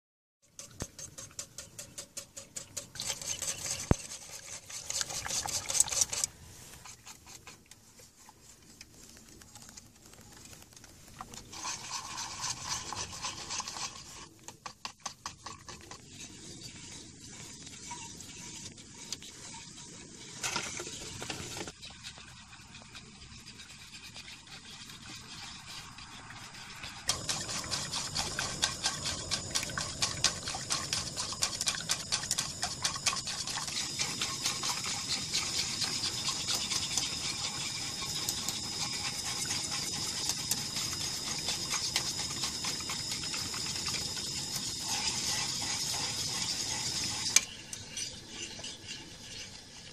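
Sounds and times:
metal spoon scraping pot: 0:00.4 - 0:07.7, 0:11.3 - 0:49.9.

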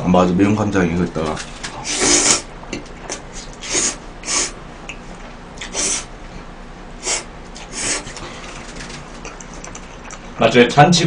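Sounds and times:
person slurping noodles: 0:01.8 - 0:02.5, 0:05.6 - 0:06.1
wet mouth clicks: 0:05.6 - 0:06.1, 0:09.2 - 0:10.3.

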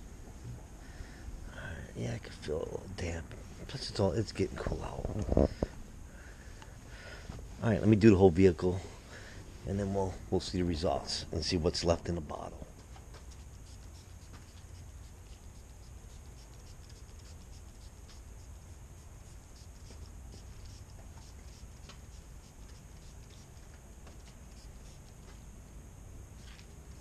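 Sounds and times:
cloth rubbing car paint: 0:12.8 - 0:25.3.

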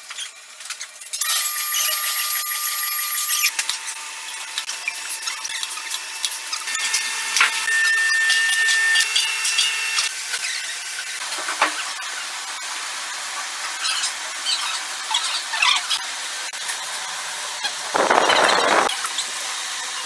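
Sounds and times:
foil sachets crinkling: 0:17.8 - 0:18.9
vacuum packaging machine rush: 0:17.9 - 0:18.9.

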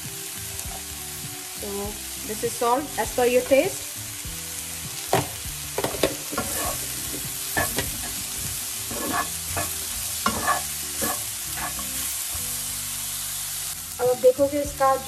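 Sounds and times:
vegetables sizzling in a frying pan: 0:00.0 - 0:15.0
wooden spatula scraping a pan: 0:05.8 - 0:12.1.

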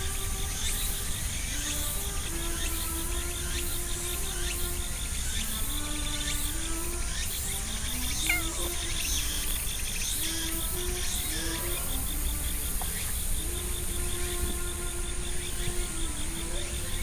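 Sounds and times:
insects trilling: 0:00.0 - 0:17.0
soft background music: 0:00.0 - 0:17.0
cat meowing: 0:08.2 - 0:08.8.

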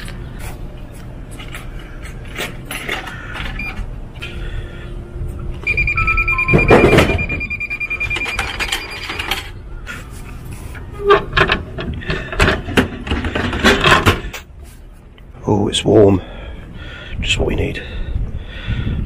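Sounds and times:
steady electronic beep: 0:05.6 - 0:09.2.

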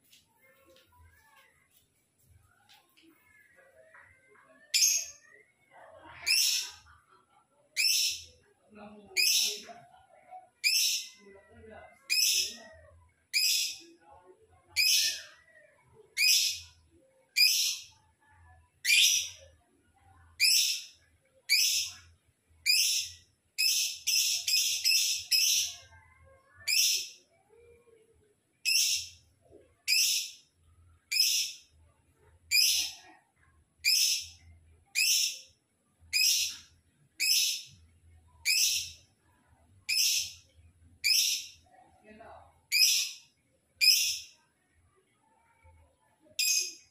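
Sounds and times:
lovebird high-pitched calls: 0:06.2 - 0:06.8, 0:07.8 - 0:08.4, 0:09.2 - 0:09.7, 0:10.6 - 0:11.2, 0:12.1 - 0:12.6, 0:13.3 - 0:13.8, 0:16.2 - 0:16.7, 0:17.4 - 0:17.9, 0:18.8 - 0:19.4, 0:21.5 - 0:22.0, 0:22.6 - 0:25.8, 0:26.7 - 0:27.2, 0:28.6 - 0:29.2, 0:29.9 - 0:30.4, 0:31.1 - 0:31.6, 0:32.5 - 0:33.0, 0:33.8 - 0:35.4, 0:36.1 - 0:37.8, 0:38.4 - 0:39.0, 0:39.9 - 0:40.4, 0:41.0 - 0:41.6, 0:42.7 - 0:43.2, 0:43.8 - 0:44.3.

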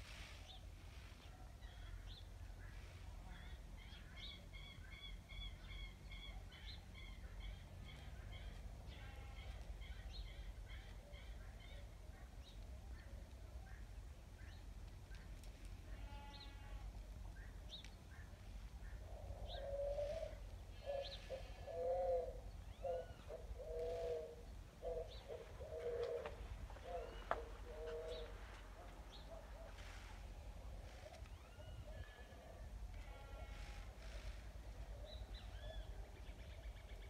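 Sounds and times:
small birds chirping: 0:17.4 - 0:31.9
dove cooing: 0:18.9 - 0:32.7.

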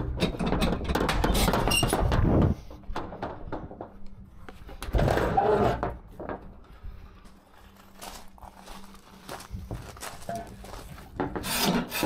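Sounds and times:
squeaking metallic clatter of doors: 0:00.0 - 0:02.2.

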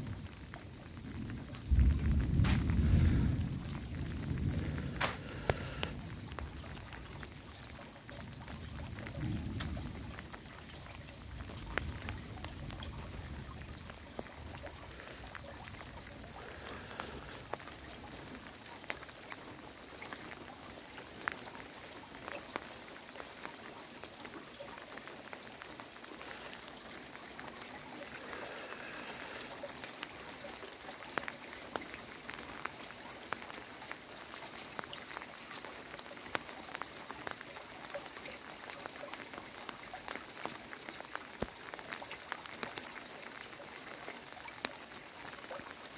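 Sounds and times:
heavy rain falling: 0:00.0 - 0:45.9
raindrops ticking on surfaces: 0:00.0 - 0:45.9
low rumble: 0:01.8 - 0:06.0.

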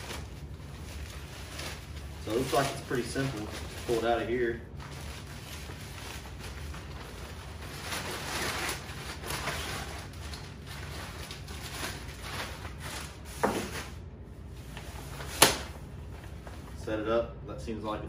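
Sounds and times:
nylon bag rustling: 0:00.0 - 0:14.0.

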